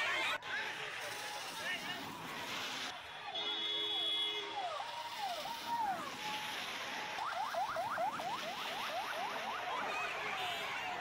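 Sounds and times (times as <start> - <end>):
police siren: 3.3 - 11.0.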